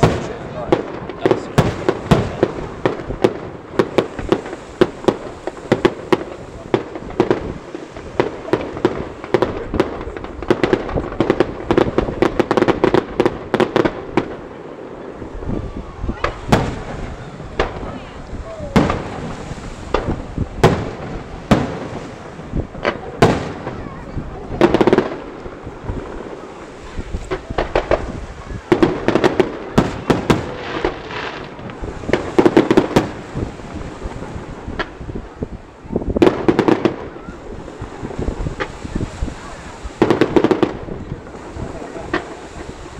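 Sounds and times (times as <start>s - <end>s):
fireworks cracking and banging: 0.0s - 42.9s
firework shells bursting: 16.2s - 23.8s.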